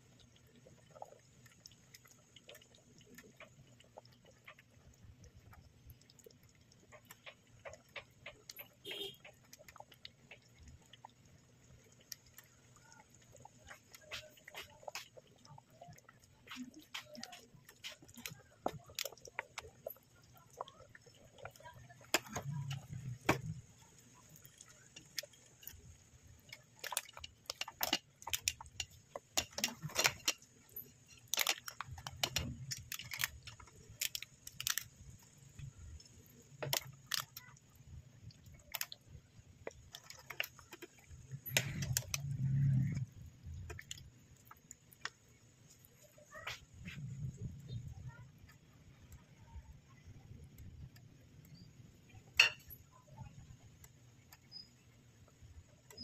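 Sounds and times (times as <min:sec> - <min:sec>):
sauce clicking and popping: 0:00.2 - 0:37.7, 0:38.3 - 0:45.8.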